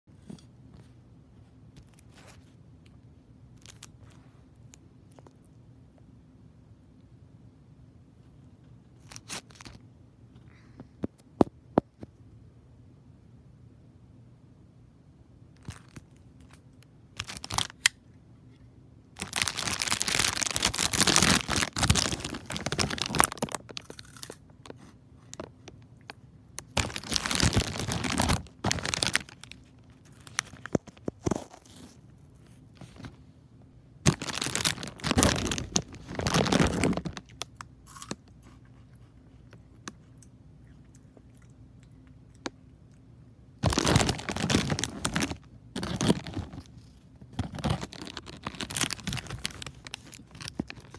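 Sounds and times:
plastic bag crinkling: 17.2 - 17.9, 19.2 - 24.4, 26.6 - 33.2, 34.0 - 37.5, 43.6 - 50.9.

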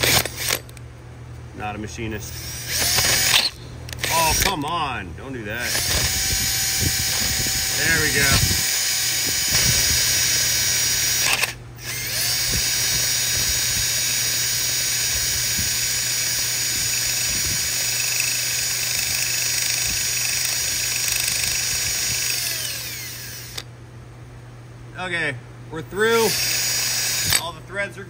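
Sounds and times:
power drill cutting into metal: 0.0 - 0.7, 2.4 - 4.6, 5.6 - 23.7, 26.2 - 27.5.

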